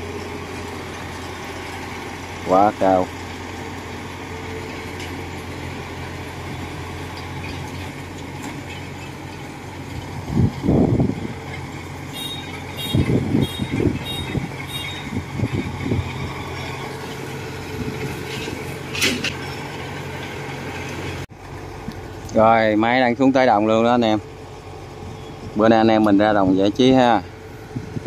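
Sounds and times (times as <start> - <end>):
diesel engine running: 0.0 - 28.0
short high beeps: 12.2 - 15.1.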